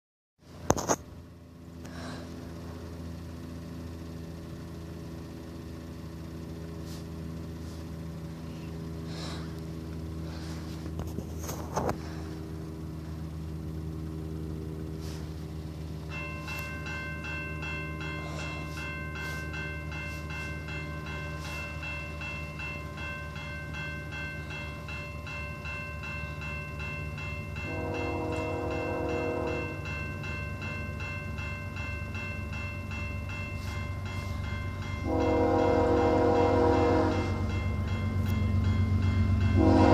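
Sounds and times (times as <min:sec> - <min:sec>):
crossing warning bell ringing: 0:00.5 - 0:39.9
low steady hum: 0:00.5 - 0:39.9
train horn: 0:27.6 - 0:29.8, 0:35.0 - 0:37.5, 0:39.5 - 0:39.9.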